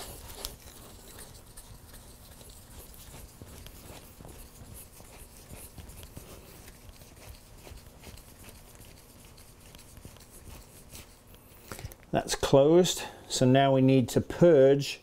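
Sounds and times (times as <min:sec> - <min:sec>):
rag rubbing: 0:00.0 - 0:11.8
faint scratching and ticks: 0:00.0 - 0:12.0.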